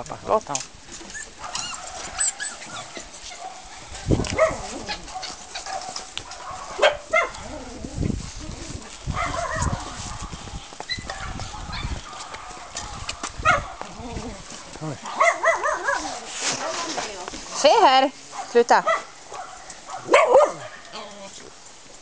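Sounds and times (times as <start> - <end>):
dog barking in short yaps: 20.0 - 20.7.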